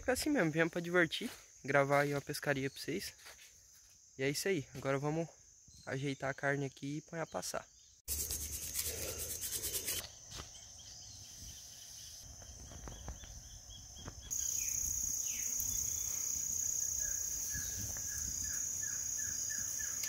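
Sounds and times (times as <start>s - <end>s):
high-pitched insect drone: 8.1s - 20.0s.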